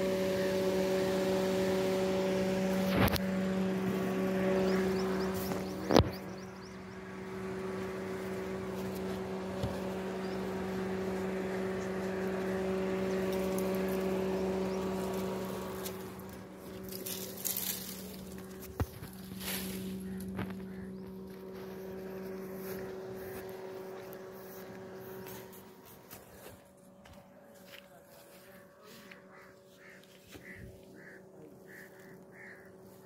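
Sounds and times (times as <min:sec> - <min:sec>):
motor humming: 0:00.0 - 0:33.0.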